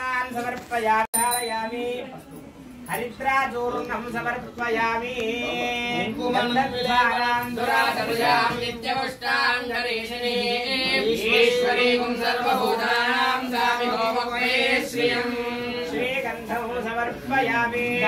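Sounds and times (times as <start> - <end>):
voices chanting together: 5.2 - 18.0.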